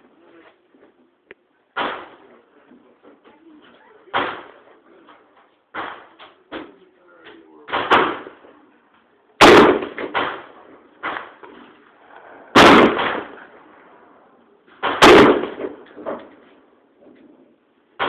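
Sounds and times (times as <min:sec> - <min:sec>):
faint bangs: 0:01.7 - 0:18.0
rifle shots: 0:01.8 - 0:02.2, 0:04.1 - 0:04.6, 0:07.7 - 0:08.4, 0:09.4 - 0:11.4, 0:12.5 - 0:13.7, 0:14.8 - 0:16.0.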